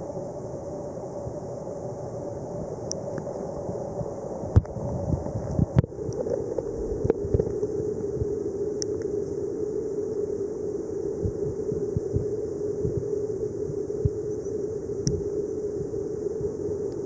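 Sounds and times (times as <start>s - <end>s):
underwater low hum: 0.0s - 17.0s.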